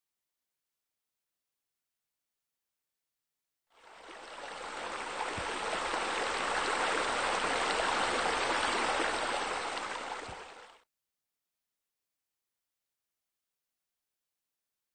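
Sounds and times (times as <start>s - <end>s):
running water: 3.8s - 10.8s.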